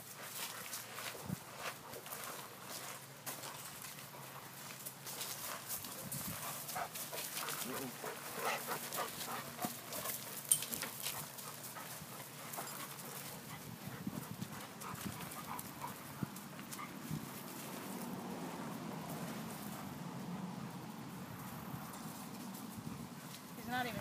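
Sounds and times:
footsteps on wood-chip mulch: 0:00.0 - 0:19.8.

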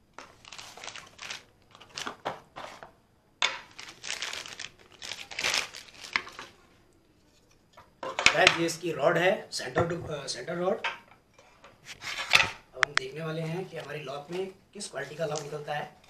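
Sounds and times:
plastic bag crinkling: 0:00.2 - 0:06.7, 0:13.6 - 0:15.7.

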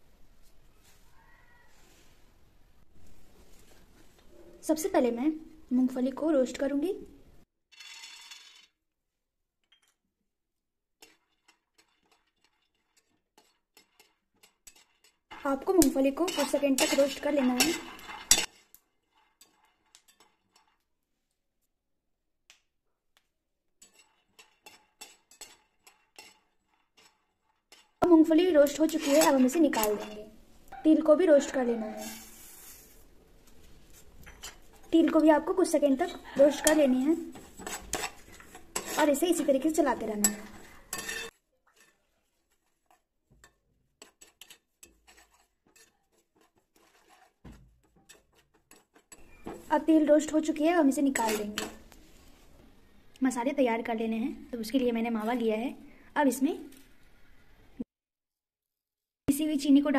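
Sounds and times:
spoon scraping nuts in a pan: 0:11.0 - 0:20.9, 0:23.8 - 0:30.5, 0:31.8 - 0:52.4.

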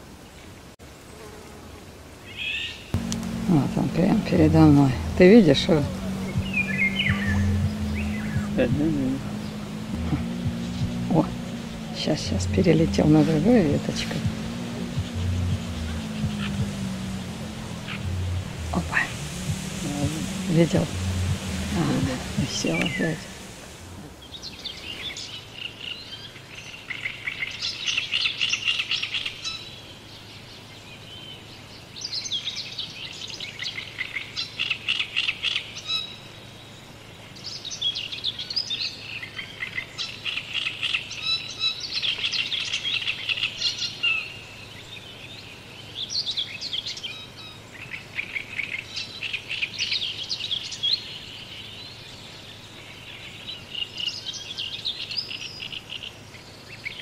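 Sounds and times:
small birds chirping: 0:02.3 - 0:26.1.

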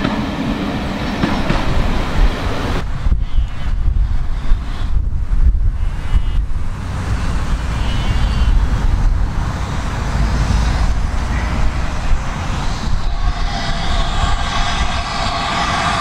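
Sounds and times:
distant steam train: 0:00.0 - 0:04.9, 0:05.8 - 0:16.0
wind buffeting microphone: 0:00.0 - 0:16.0.

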